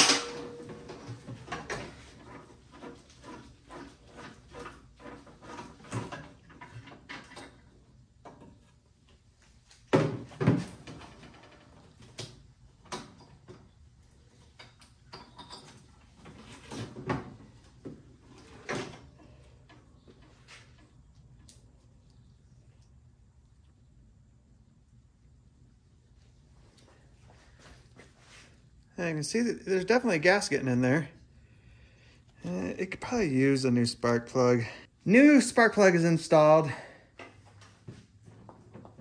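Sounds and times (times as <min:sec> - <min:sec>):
tools and parts clunking: 0:00.0 - 0:08.8, 0:12.8 - 0:13.8, 0:14.4 - 0:21.5.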